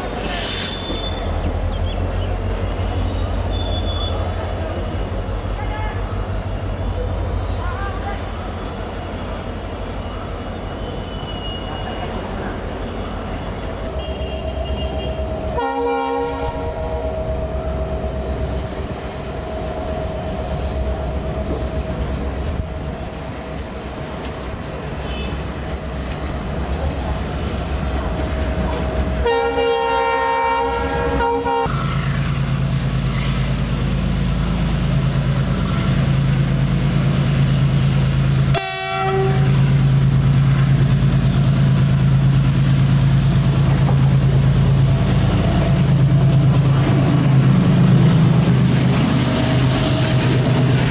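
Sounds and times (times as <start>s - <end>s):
diesel locomotives running past: 0.0s - 50.9s
train horn blasts: 13.9s - 17.0s, 29.2s - 31.7s, 38.5s - 39.8s.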